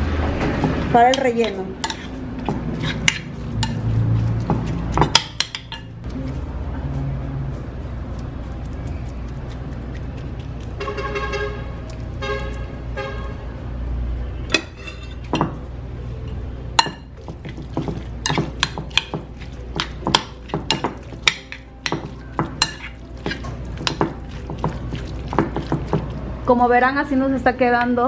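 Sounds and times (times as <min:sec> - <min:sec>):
fork stirring filling: 0:00.2 - 0:06.6, 0:07.6 - 0:13.4, 0:16.8 - 0:26.6.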